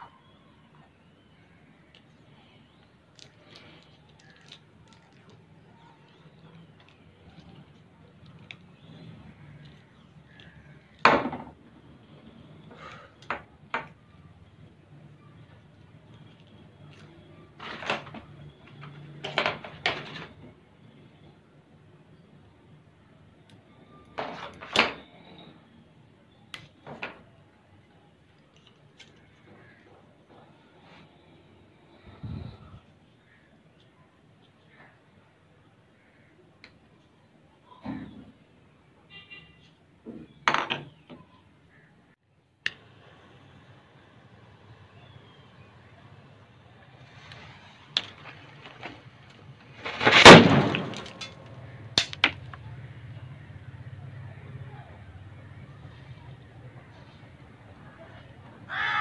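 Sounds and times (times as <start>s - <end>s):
tape pulled off roll: 47.0s - 51.3s
sharp crackles: 47.0s - 52.5s
firecracker explosion: 49.8s - 51.3s.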